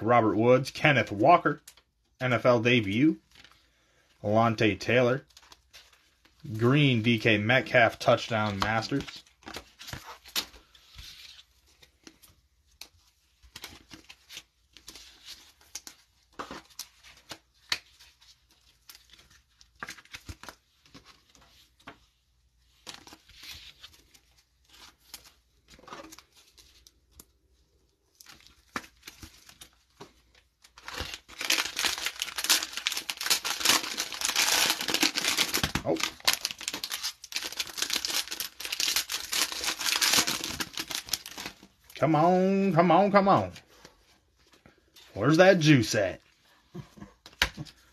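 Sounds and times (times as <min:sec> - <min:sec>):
cards and sleeves rustling: 0:02.2 - 0:47.9
plastic wrapper tearing and crinkling: 0:30.5 - 0:42.0.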